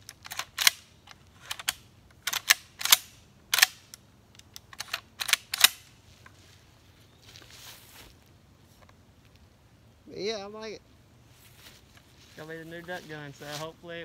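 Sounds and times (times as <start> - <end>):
shotgun mechanical clicks: 0.0 - 5.9.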